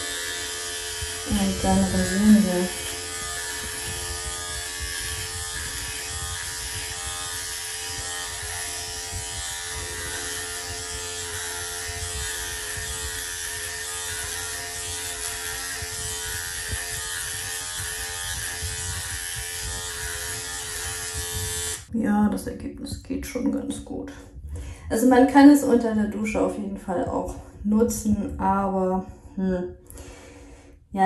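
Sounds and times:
epilator motor hum: 0:00.0 - 0:21.9.

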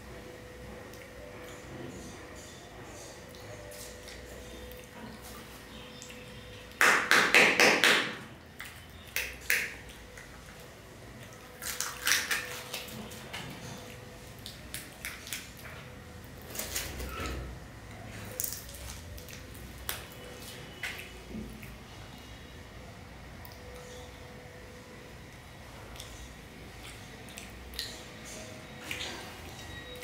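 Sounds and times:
faint steady hum: 0:07.6 - 0:30.0
plastic and foil crinkling: 0:18.2 - 0:21.2.

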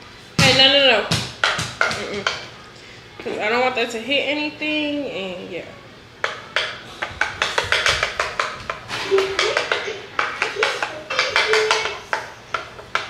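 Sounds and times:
utensil scraping bowl: 0:06.2 - 0:13.0.

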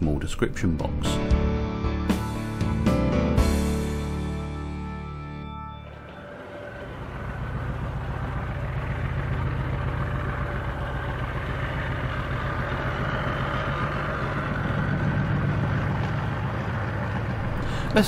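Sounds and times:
model train engine drone: 0:05.8 - 0:18.0
train rumbling on track: 0:05.9 - 0:18.0.

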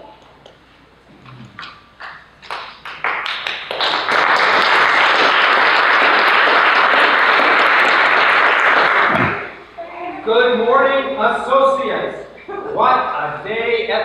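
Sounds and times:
audience applauding: 0:02.0 - 0:09.6.

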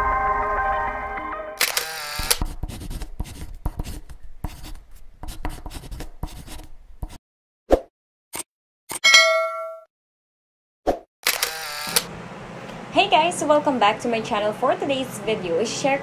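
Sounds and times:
pen scratching on paper: 0:02.4 - 0:07.2
bell-like notification ding: 0:09.0 - 0:09.9.

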